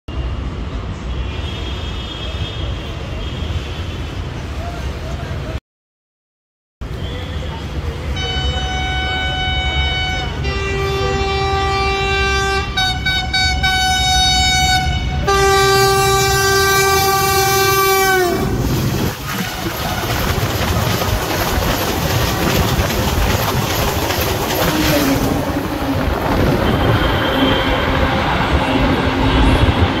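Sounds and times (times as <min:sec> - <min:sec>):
train coaches passing: 0:00.2 - 0:05.6, 0:06.8 - 0:30.0
locomotive air horn blasts: 0:08.1 - 0:18.8, 0:24.7 - 0:30.0.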